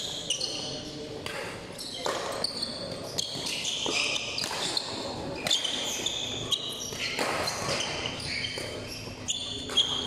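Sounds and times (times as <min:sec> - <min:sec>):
sneakers squeaking on court: 0:00.0 - 0:10.0
voices in a hall: 0:00.0 - 0:10.0
racket striking shuttlecock: 0:03.8 - 0:05.9.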